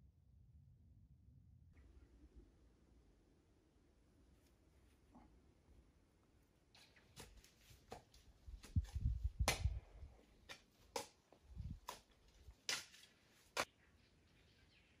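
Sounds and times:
sharp cracks and knocks: 6.7 - 13.8.

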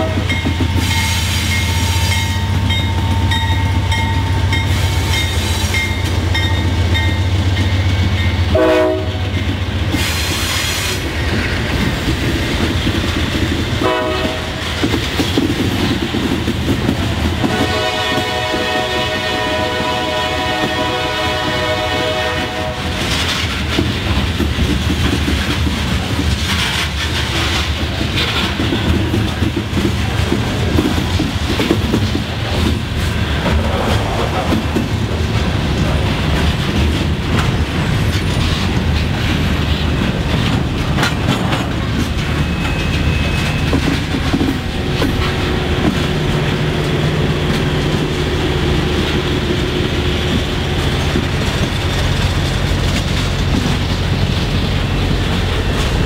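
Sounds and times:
locomotive horn blast: 0.0 - 0.3, 8.5 - 9.3, 13.8 - 14.6, 17.4 - 23.1
freight train rumbling past: 0.0 - 56.0
wheel squeals: 42.0 - 45.2.

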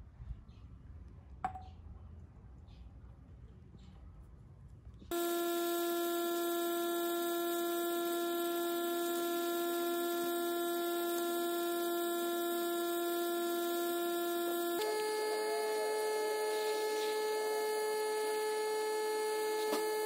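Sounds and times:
airbrush compressor humming: 5.1 - 20.0.

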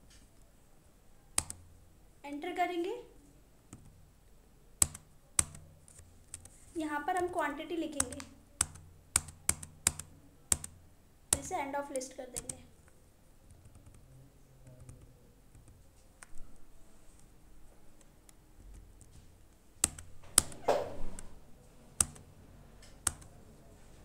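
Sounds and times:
computer keyboard keystrokes: 1.4 - 1.6, 4.8 - 6.5, 7.2 - 11.5, 12.4 - 12.6, 13.5 - 14.0, 19.8 - 21.3, 22.0 - 23.4.

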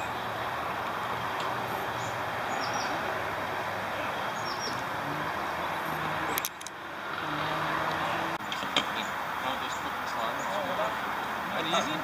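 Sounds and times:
steady outdoor rushing noise: 0.0 - 12.0.

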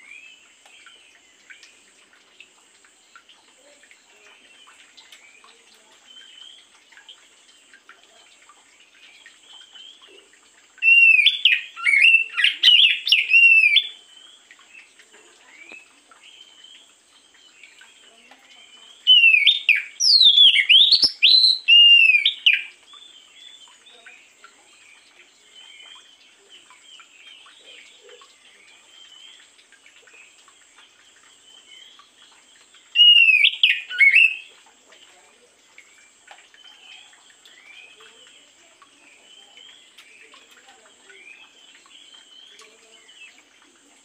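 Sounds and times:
faint bird chirps: 3.0 - 44.0
bird singing whistled phrases: 10.8 - 14.0, 19.0 - 22.7, 33.0 - 34.5.

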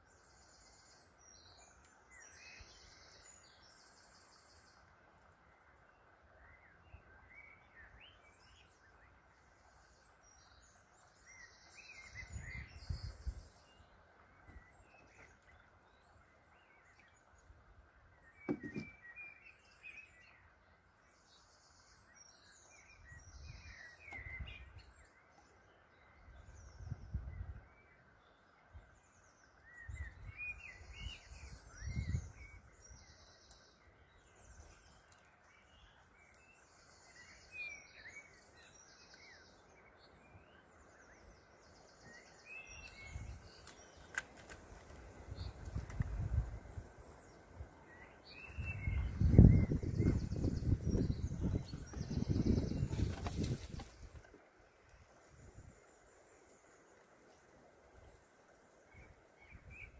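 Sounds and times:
songbirds chirping: 0.0 - 59.9
brief knock: 18.5 - 19.0.

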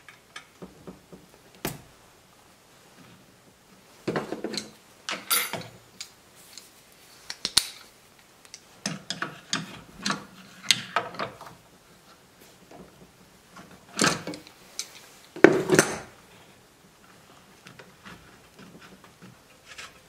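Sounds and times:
metal tools clicking and scraping: 4.5 - 6.7.

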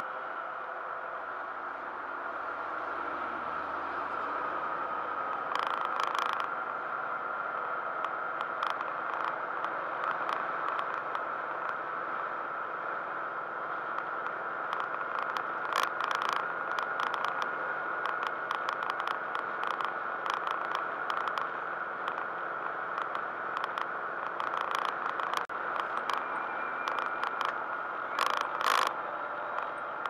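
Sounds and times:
car road and engine drone: 0.0 - 30.0
thin whine: 0.0 - 30.0
small rattles and clicks: 5.2 - 6.8, 8.0 - 11.8, 13.9 - 29.8.

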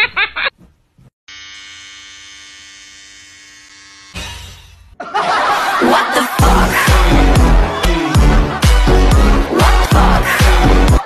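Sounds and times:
loud laughter: 5.0 - 8.8.

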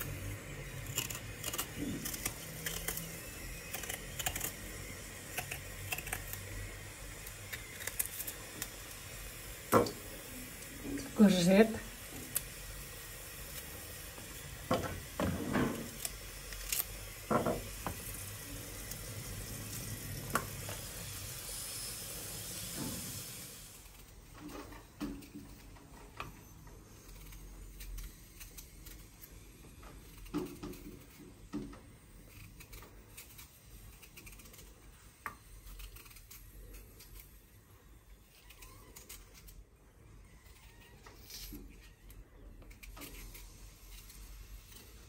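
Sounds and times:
knife peeling potato: 0.0 - 45.0
steady hiss: 6.0 - 24.1.

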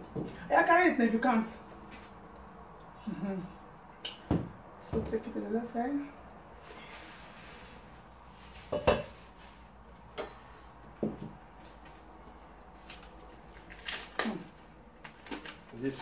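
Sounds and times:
plates clinking: 8.7 - 9.2.

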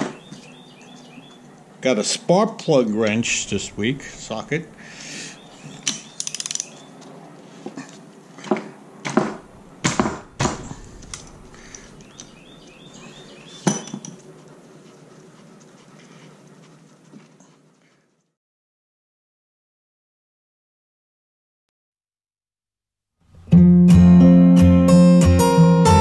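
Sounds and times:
metal tools clinking: 5.6 - 6.8.

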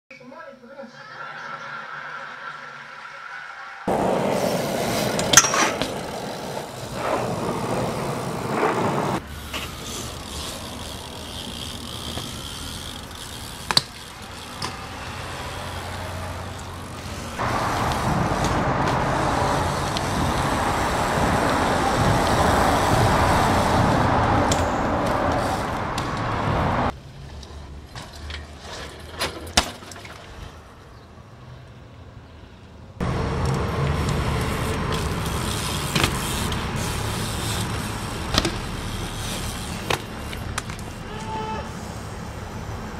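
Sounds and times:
traffic rush: 1.9 - 42.9
bike tyres rolling on concrete: 3.8 - 42.9
bike knocking and clanking: 5.2 - 6.4, 9.4 - 15.7, 27.8 - 30.4, 33.4 - 41.6
wind noise: 17.4 - 26.9.

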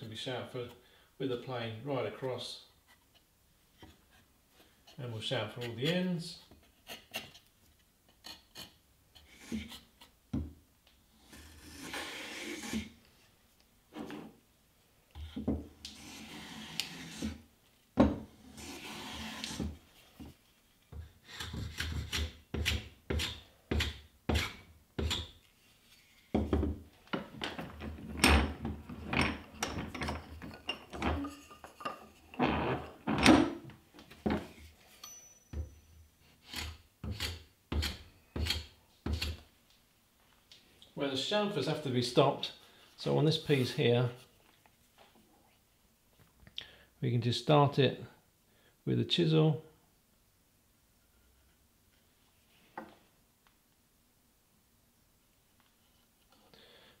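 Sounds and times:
slow scraping strokes on wood: 8.1 - 10.2, 11.1 - 14.4, 15.2 - 17.5, 18.3 - 22.4, 23.3 - 26.4, 36.2 - 39.4
plane cutting strokes on wood: 15.8 - 17.4, 18.4 - 19.7.

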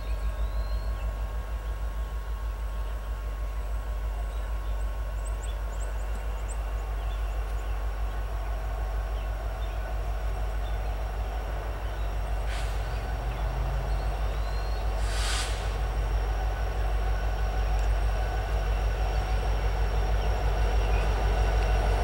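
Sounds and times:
locomotive diesel rumble: 0.0 - 22.0
brief hiss: 12.4 - 13.1, 15.0 - 15.9.

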